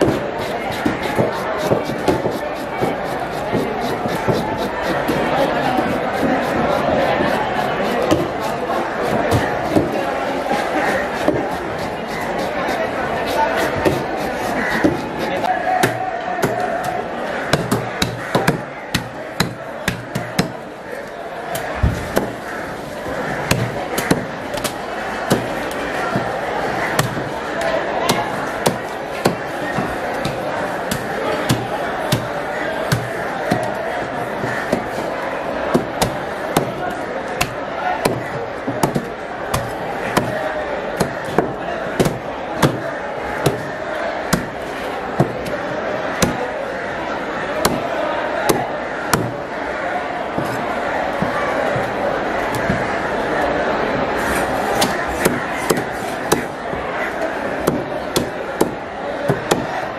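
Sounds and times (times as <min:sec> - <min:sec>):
cleaver chopping fish on wood: 0:00.0 - 0:10.0, 0:10.6 - 0:20.6, 0:32.9 - 0:33.7, 0:37.4 - 0:38.2, 0:47.6 - 0:47.8, 0:48.5 - 0:49.4
steady background noise: 0:00.0 - 0:59.9.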